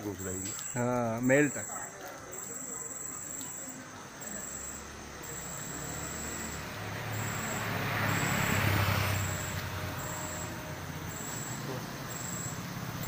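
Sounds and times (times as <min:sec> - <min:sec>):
night insects trilling: 0:00.0 - 0:13.0
passing vehicle: 0:04.3 - 0:13.0.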